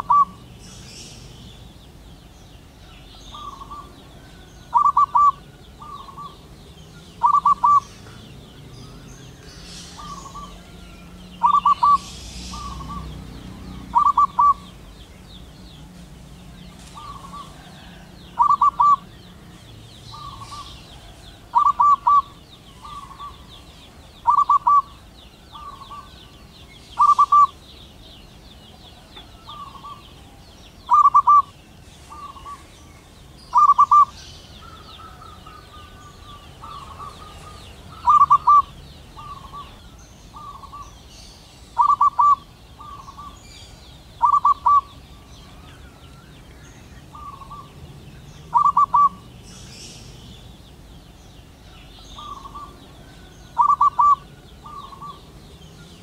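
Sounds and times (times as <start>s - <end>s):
dove cooing: 0.0s - 1.3s, 2.9s - 15.0s, 16.8s - 19.4s, 20.1s - 23.6s, 24.2s - 26.2s, 27.0s - 27.7s, 28.8s - 32.8s, 33.5s - 40.9s, 41.8s - 43.4s, 44.2s - 45.7s, 47.1s - 47.8s, 48.5s - 49.4s, 52.2s - 55.3s.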